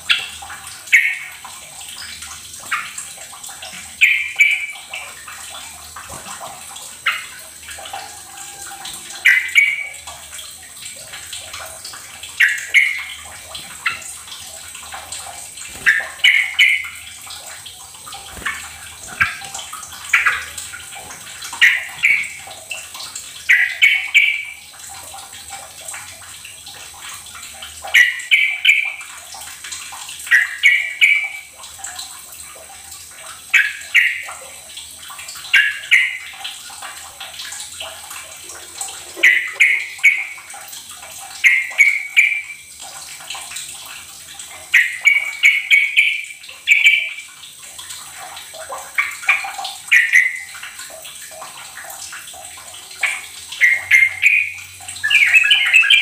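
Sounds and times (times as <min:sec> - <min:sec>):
bird calling: 0:53.6 - 0:56.0.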